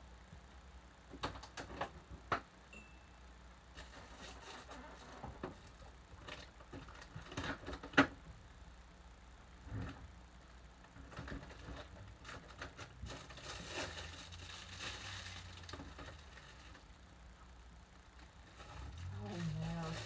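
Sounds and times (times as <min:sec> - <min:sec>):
faint high tone: 0:02.7 - 0:03.2.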